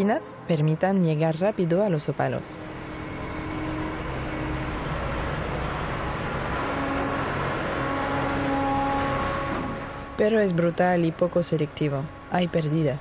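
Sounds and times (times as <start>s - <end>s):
front loader diesel engine running: 2.4s - 12.3s.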